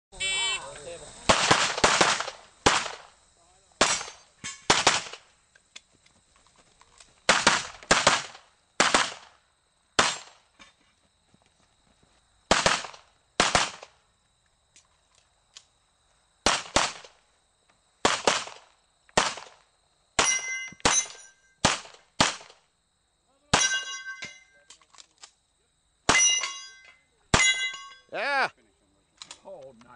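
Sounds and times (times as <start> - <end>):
pistol shots: 1.3 - 3.1, 3.8 - 5.3, 7.3 - 9.3, 12.5 - 13.9, 16.4 - 17.2, 18.0 - 18.6, 19.2 - 19.6, 20.2 - 22.6
steel plates ringing: 20.2 - 21.5, 23.6 - 24.5, 26.1 - 28.2.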